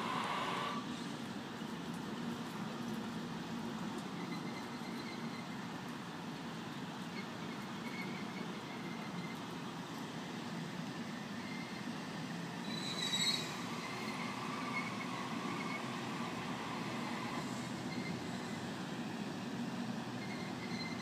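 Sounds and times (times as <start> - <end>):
electric train running: 0.0 - 0.8, 12.6 - 18.9
wheel squeal on rails: 4.2 - 5.6, 7.2 - 9.4, 11.3 - 12.0, 12.6 - 18.7, 20.1 - 21.0.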